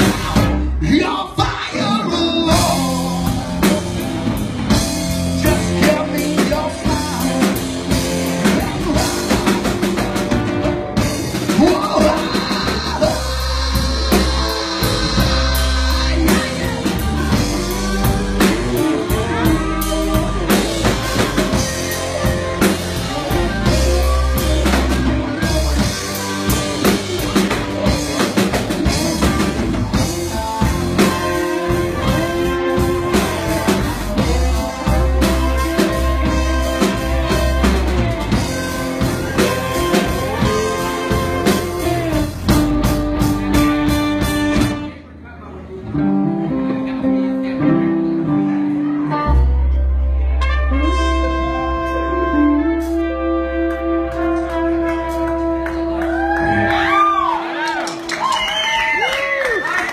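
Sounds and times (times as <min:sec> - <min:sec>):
drum kit beats: 0:00.0 - 0:45.2, 0:46.0 - 0:59.9
electric guitars: 0:02.0 - 0:45.0, 0:45.9 - 0:59.9.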